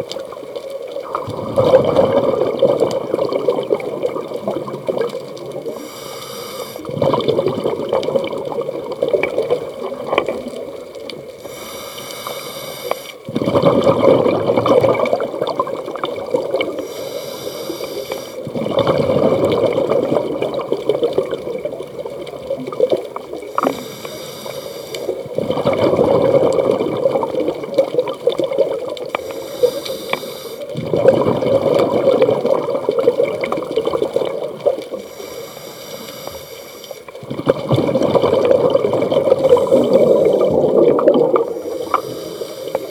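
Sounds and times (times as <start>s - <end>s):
gurgling exhaust bubbles: 1.0s - 5.8s, 6.9s - 10.8s, 13.3s - 16.8s, 18.5s - 23.7s, 25.2s - 29.1s, 30.7s - 34.8s, 37.2s - 42.1s
regulator inhale hiss: 5.7s - 7.0s, 11.4s - 13.3s, 16.7s - 18.5s, 23.5s - 25.3s, 29.1s - 30.8s, 34.9s - 37.2s, 39.4s - 40.6s, 41.4s - 42.9s.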